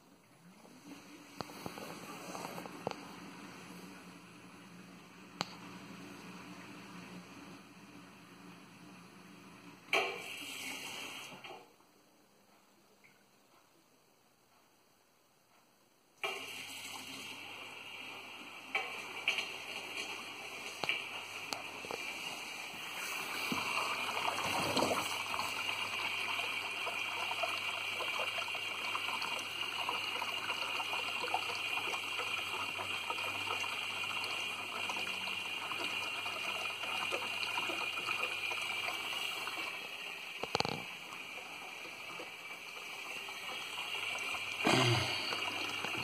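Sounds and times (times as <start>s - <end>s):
water rushing in dishwasher: 9.9s - 11.6s, 16.2s - 46.0s.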